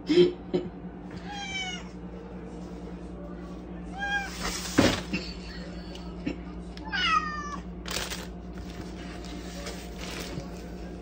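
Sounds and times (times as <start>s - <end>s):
cat meowing: 1.3s - 1.9s, 6.8s - 7.7s.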